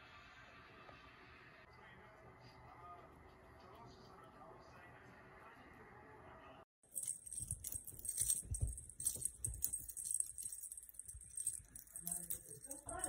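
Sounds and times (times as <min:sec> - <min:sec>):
toy rustling: 0:06.9 - 0:13.0.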